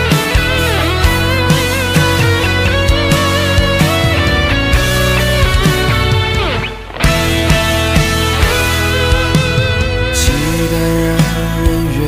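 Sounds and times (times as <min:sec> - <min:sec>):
guitar: 0:00.0 - 0:12.0
steady drum beat: 0:00.0 - 0:12.0
held melody line with vibrato: 0:02.1 - 0:09.4.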